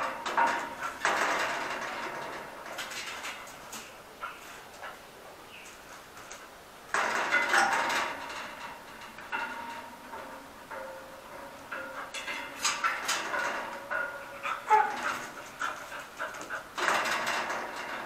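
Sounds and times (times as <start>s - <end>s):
dogs panting: 13.9s - 16.8s
dogs whimpering: 14.2s - 16.7s.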